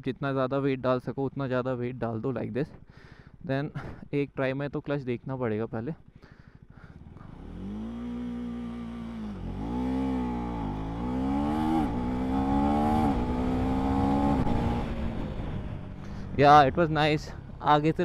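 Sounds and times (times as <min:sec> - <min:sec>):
motorcycle accelerating hard: 0:06.6 - 0:17.7.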